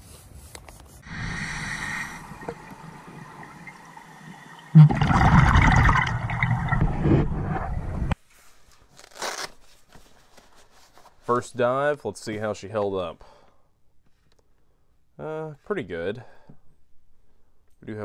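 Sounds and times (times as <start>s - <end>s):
regulator hiss: 1.0s - 4.4s
exhaled bubbles gurgling: 1.0s - 8.2s.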